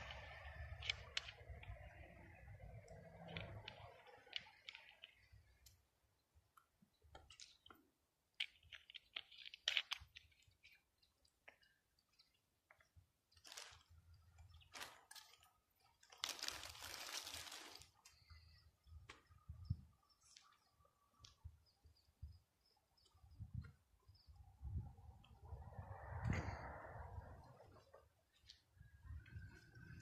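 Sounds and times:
faint crackles and clicks: 0.0 - 5.8, 6.5 - 21.5
rustling noise: 16.1 - 18.1.

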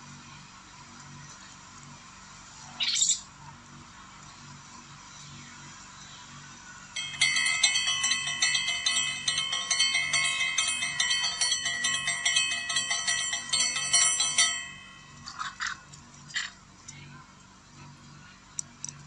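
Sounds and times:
chimes ringing: 7.0 - 15.8.

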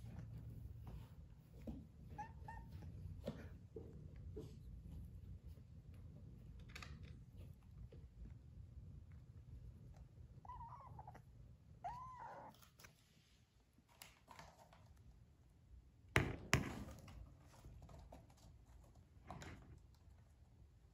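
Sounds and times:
kitten meowing: 10.4 - 11.2, 11.8 - 12.6.

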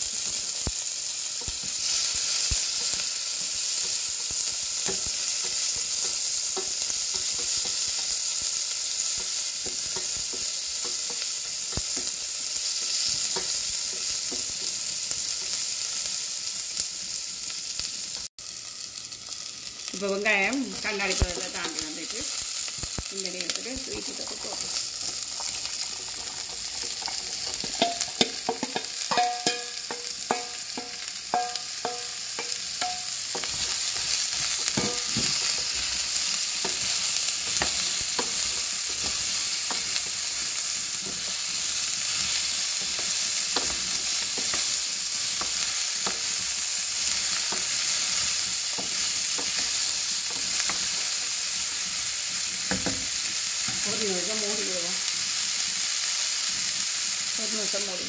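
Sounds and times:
vegetables sizzling in oil: 0.0 - 58.0
scrapes and taps in a pan: 4.8 - 8.1, 9.2 - 12.2, 24.4 - 34.1, 37.5 - 39.9
knocks ringing off a pan: 27.6 - 33.6, 34.7 - 35.6.

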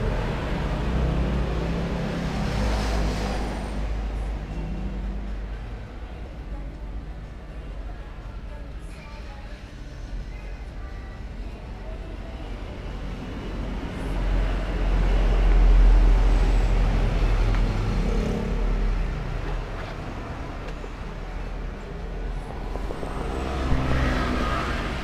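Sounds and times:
vehicle engine passing: 13.6 - 25.0.

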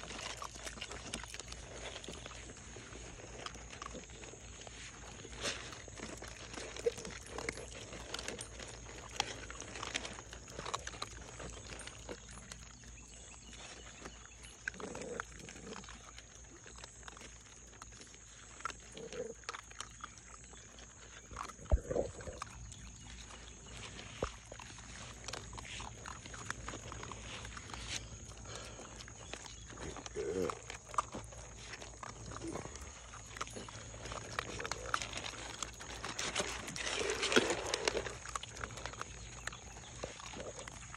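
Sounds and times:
puppies chewing and snuffling: 0.0 - 40.9
puppy grunts: 14.6 - 16.2, 18.8 - 20.6, 21.2 - 23.8, 25.4 - 40.9.

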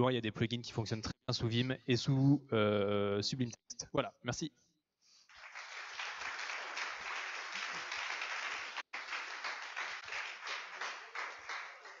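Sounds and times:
audience applauding: 5.3 - 12.0.

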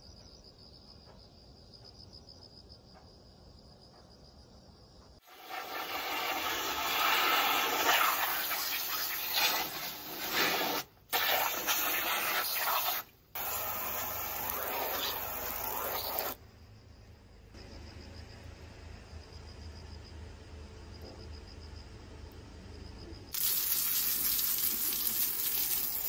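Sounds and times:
hose spray hissing and splashing: 5.2 - 16.4, 23.3 - 26.0.

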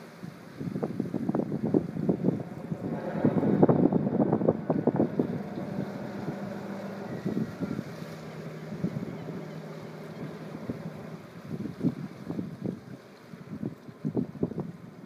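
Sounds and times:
boat diesel engine humming: 0.0 - 15.0
wind buffeting microphone: 0.0 - 15.0.

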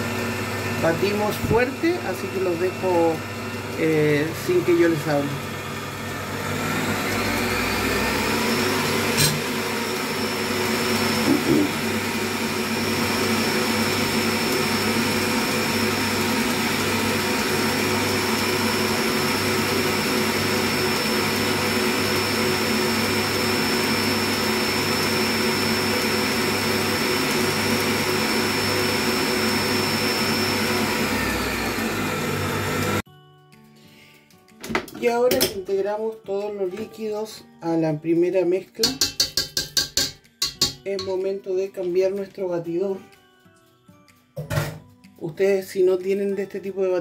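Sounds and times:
stand mixer motor whining: 0.0 - 33.0.

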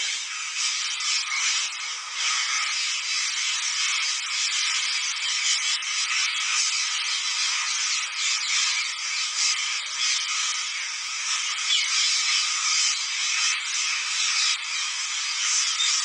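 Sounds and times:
flock of parrots screeching: 0.0 - 16.0.

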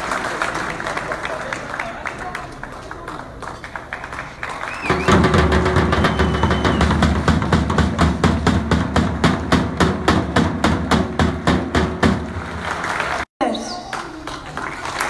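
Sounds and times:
fast percussive beat: 4.9 - 12.6.

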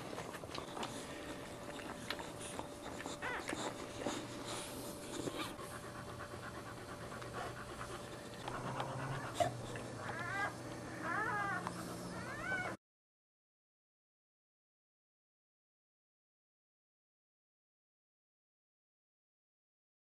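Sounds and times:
wet licking: 0.0 - 9.1
dog panting: 0.0 - 12.8
puppies squeaking: 0.2 - 5.6, 8.5 - 12.8.

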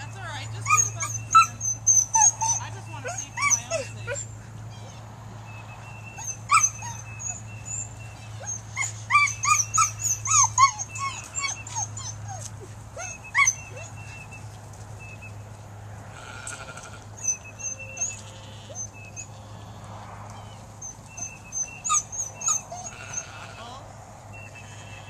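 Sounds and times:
dog whining and yipping: 0.0 - 5.1, 5.9 - 15.3, 17.2 - 19.5, 20.4 - 23.5.

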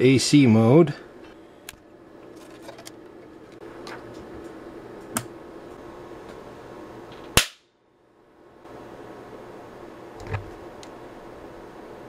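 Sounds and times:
low steady hum: 0.0 - 12.0
electric spark crack: 7.4 - 7.6.

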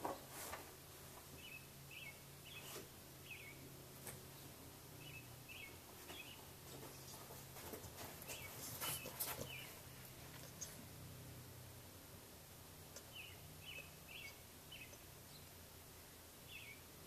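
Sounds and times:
steady low hum: 0.0 - 17.0
puppy clicks and scuffs: 6.7 - 10.8
faint high chirps: 13.0 - 15.5.

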